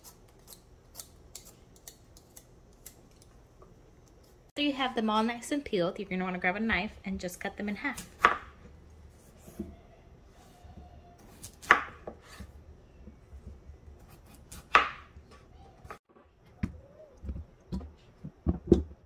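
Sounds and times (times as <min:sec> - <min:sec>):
knife chopping on cutting board: 0:11.3 - 0:12.5, 0:14.0 - 0:15.1.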